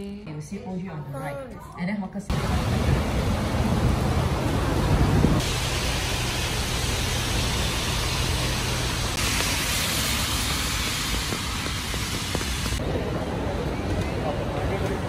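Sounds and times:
rain hissing: 2.3s - 13.6s
traffic on a wet road: 2.3s - 15.0s
wind rumbling on microphone: 2.5s - 5.5s.

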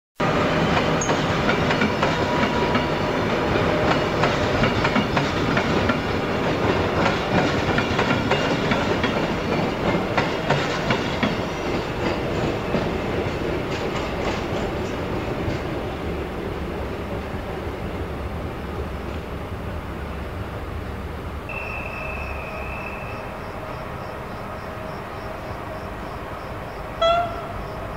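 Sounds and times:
train wheels clattering over rail joints: 0.5s - 17.2s.

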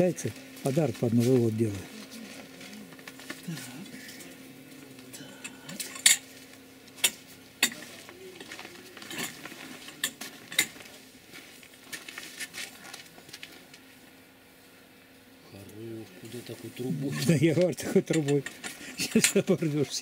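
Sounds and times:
steel tools clanking: 17.1s - 19.5s.

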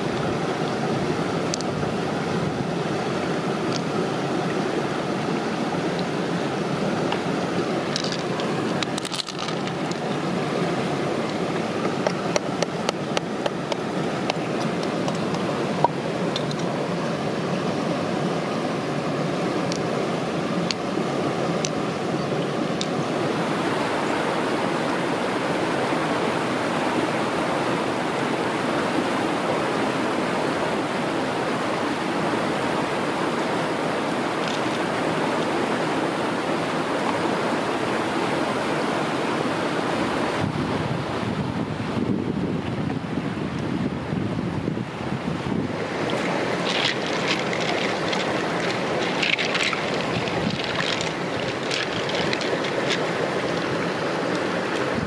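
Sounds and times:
flowing river water: 0.0s - 55.0s.

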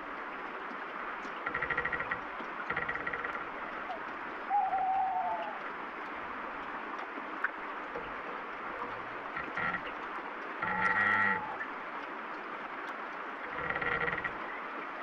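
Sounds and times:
steady rain: 0.0s - 15.0s
tree branches creaking: 1.3s - 4.0s, 8.0s - 11.6s, 13.4s - 14.6s
owl hoot: 4.5s - 5.6s.

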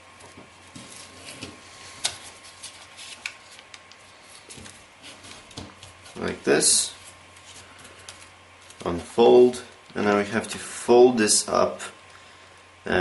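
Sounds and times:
paper rustling: 0.2s - 10.8s
paper crackles: 0.7s - 10.8s.

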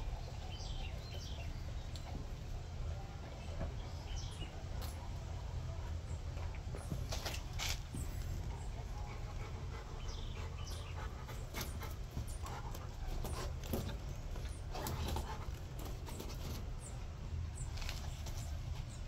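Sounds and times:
dog panting and sniffing: 6.8s - 16.8s.

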